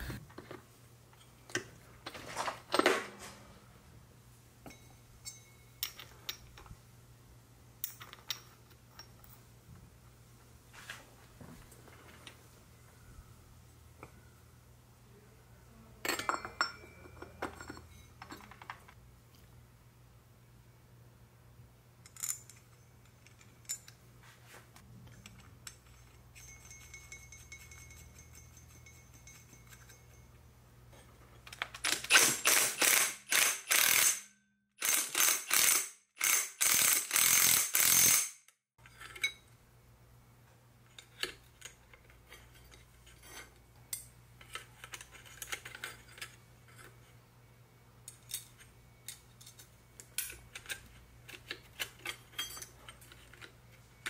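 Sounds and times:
faint steady hum: 0:00.0 - 0:32.0
tools clicking and knocking: 0:16.1 - 0:19.0, 0:25.0 - 0:30.4, 0:31.0 - 0:39.5, 0:40.8 - 0:47.0, 0:48.0 - 0:54.0
ratchet wrench clicking: 0:31.8 - 0:38.4.

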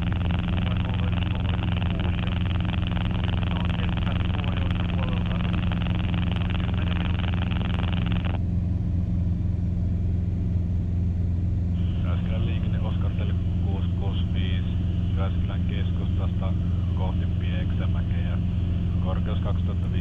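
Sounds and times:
radio hiss and garbled transmission: 0:00.0 - 0:08.4, 0:11.8 - 0:20.0
aircraft engine droning: 0:00.0 - 0:20.0.

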